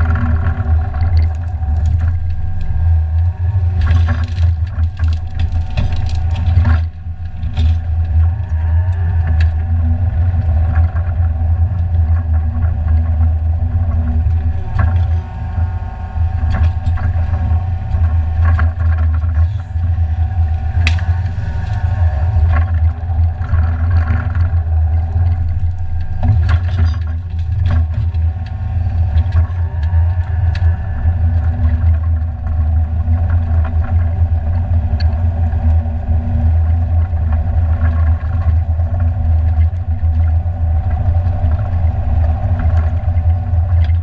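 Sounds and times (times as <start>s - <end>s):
branches cracking and snapping: 0.0s - 9.7s, 16.3s - 32.3s
diesel engine running: 0.0s - 44.0s.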